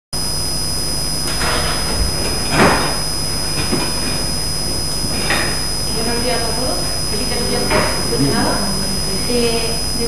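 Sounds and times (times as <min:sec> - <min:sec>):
electrical hiss with high whine: 0:00.2 - 0:10.0.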